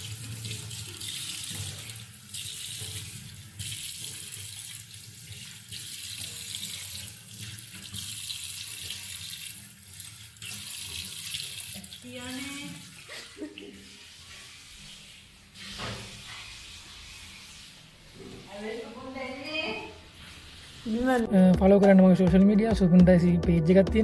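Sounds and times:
tap water splashing in sink: 0:00.0 - 0:13.1, 0:15.6 - 0:16.8.

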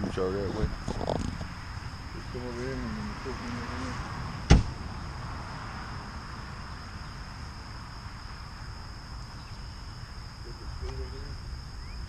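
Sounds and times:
insects droning: 0:00.0 - 0:12.0
sharp knock: 0:04.5 - 0:04.8.

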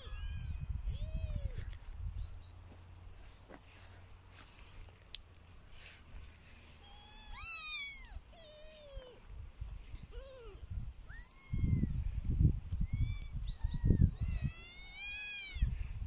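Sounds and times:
kittens mewing: 0:06.8 - 0:09.2, 0:10.1 - 0:11.9.

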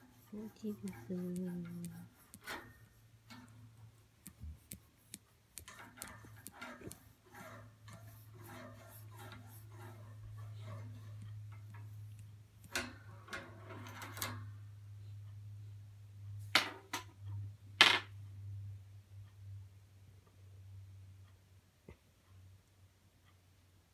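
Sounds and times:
steady low hum: 0:00.0 - 0:13.4
scratching on wire crate bars: 0:00.0 - 0:14.5.

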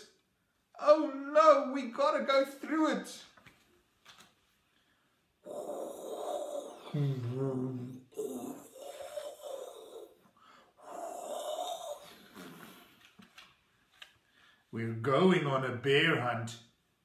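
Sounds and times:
man imitating howling wind: 0:05.5 - 0:10.1.

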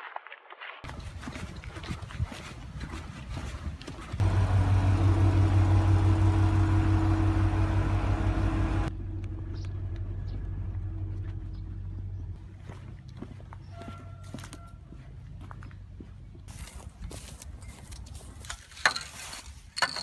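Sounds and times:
diesel locomotive engine idling: 0:04.2 - 0:13.9.

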